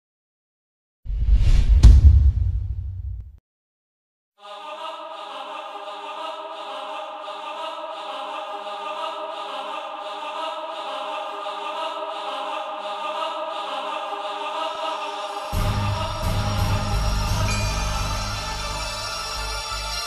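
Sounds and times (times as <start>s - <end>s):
choir-like chant of sustained tones: 4.4s - 20.0s
logo sting music: 15.6s - 20.0s.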